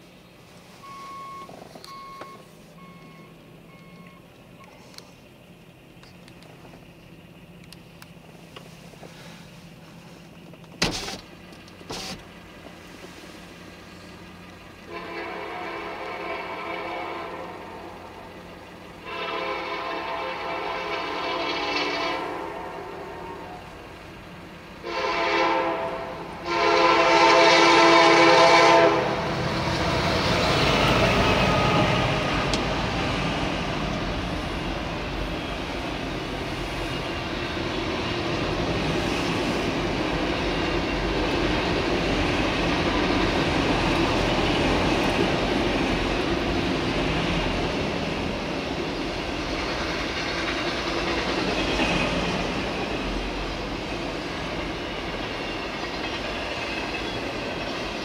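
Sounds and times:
train rumble and wheel clatter: 0.0s - 58.0s
freight train horn: 14.7s - 24.0s, 24.8s - 32.6s.

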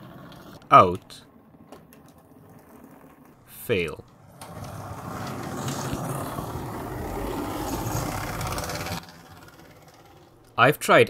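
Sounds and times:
wheels on rails: 0.0s - 11.0s
model train motor whirring: 4.2s - 10.9s.

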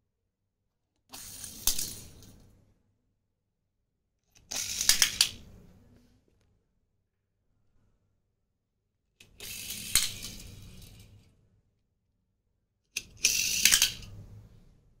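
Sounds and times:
toy car click: 1.1s - 2.4s, 4.3s - 5.4s, 9.2s - 11.0s, 13.0s - 14.2s
toy cars rolling on tile floor: 1.1s - 2.5s, 4.3s - 5.6s, 9.2s - 11.4s, 13.0s - 14.4s.

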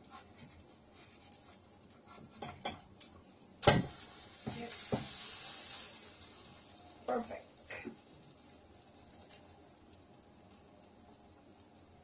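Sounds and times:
spatula scraping in frying pan: 0.0s - 2.7s, 3.9s - 6.8s
oil sizzling: 0.0s - 12.0s.

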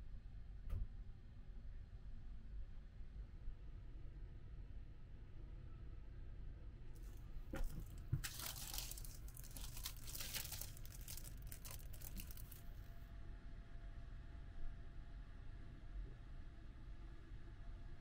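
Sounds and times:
plastic bag crinkling: 7.0s - 12.9s.

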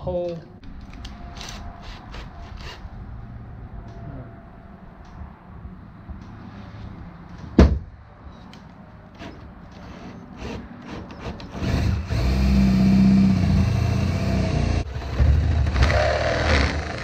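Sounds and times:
cordless drill boring wood: 11.2s - 17.0s.

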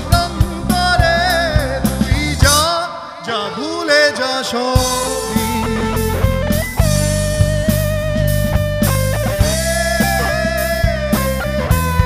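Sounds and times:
bass guitar: 0.0s - 2.8s, 4.8s - 12.0s
steady drum beat: 0.0s - 2.8s, 4.8s - 12.0s
electric guitar lead notes: 3.5s - 12.0s.

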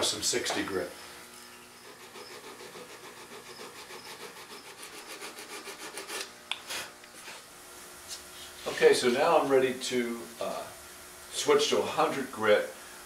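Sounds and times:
sandpaper rubbing on wood: 1.7s - 7.5s, 8.1s - 9.2s.

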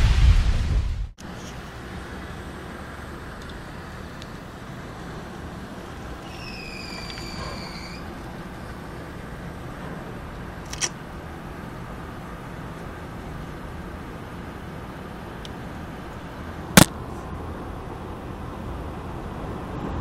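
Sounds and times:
rain: 0.0s - 20.0s
tornado wind: 0.0s - 20.0s
high whistling tone: 6.2s - 8.1s.

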